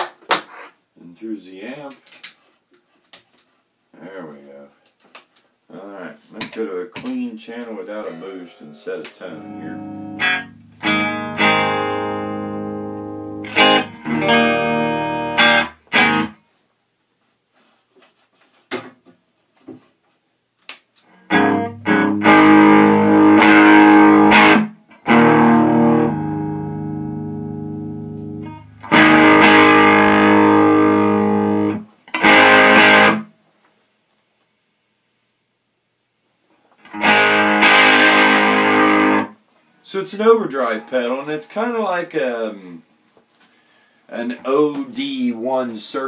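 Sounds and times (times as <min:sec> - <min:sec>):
overdriven electric guitar chords: 0:09.3 - 0:16.4, 0:21.2 - 0:33.3, 0:36.8 - 0:39.3.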